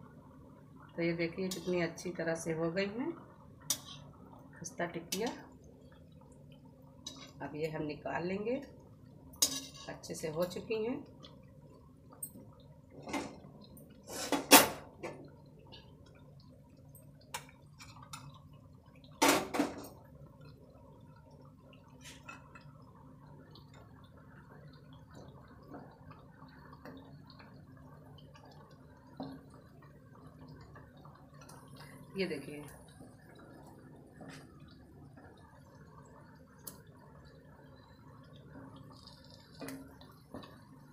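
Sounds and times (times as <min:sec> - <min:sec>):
food sizzling in oil: 0:00.6 - 0:40.9
tongs clinking and scraping pan: 0:03.7 - 0:04.0, 0:09.4 - 0:09.9.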